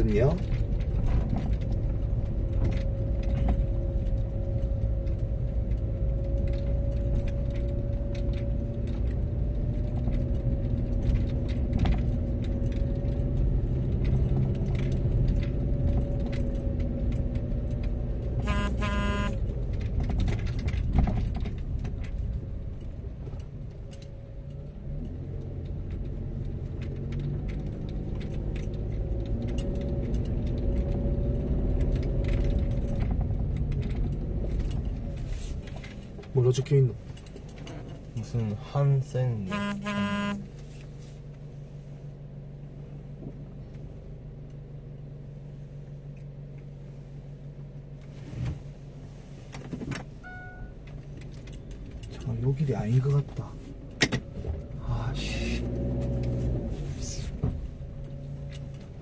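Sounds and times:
small rattles and knocks: 0:00.0 - 0:18.4, 0:19.4 - 0:39.4, 0:47.6 - 0:59.0
car engine and tyre noise: 0:00.0 - 0:59.0
short beep: 0:18.4 - 0:19.4, 0:39.5 - 0:40.4, 0:50.2 - 0:50.8.

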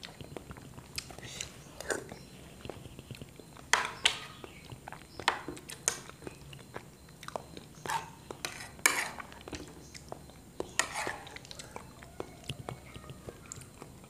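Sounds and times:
wet chewing and mouth smacking: 0:00.0 - 0:14.0.

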